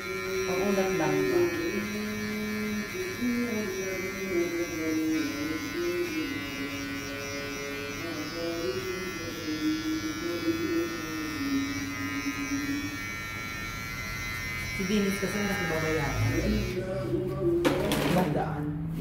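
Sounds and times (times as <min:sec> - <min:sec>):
electric hair clipper buzzing: 0:00.0 - 0:17.1.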